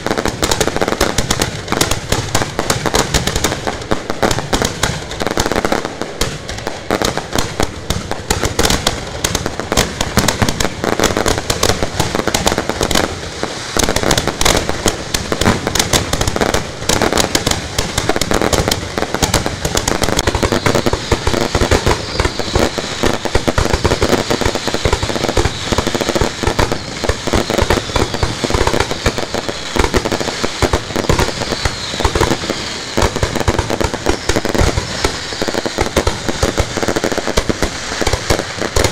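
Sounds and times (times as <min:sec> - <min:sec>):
firework whistles: 0:00.0 - 0:38.9
fireworks cracking and banging: 0:00.0 - 0:38.9.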